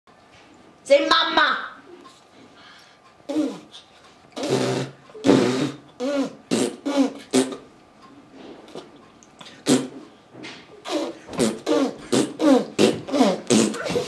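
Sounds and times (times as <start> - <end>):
baby blowing raspberries: 3.3 - 7.7, 8.7 - 10.1, 10.8 - 14.0.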